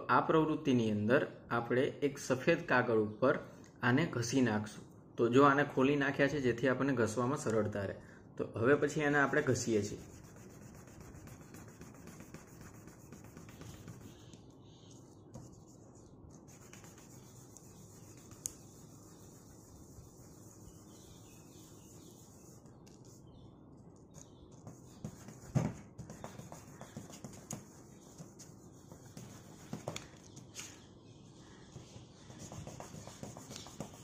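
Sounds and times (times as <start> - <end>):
peanuts rubbing on paper: 9.6 - 23.3, 24.6 - 30.3, 31.4 - 34.0.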